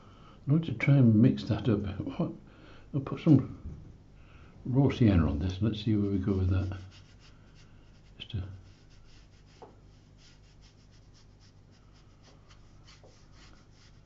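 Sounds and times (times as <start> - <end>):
brush swishing on paper: 5.6 - 14.0.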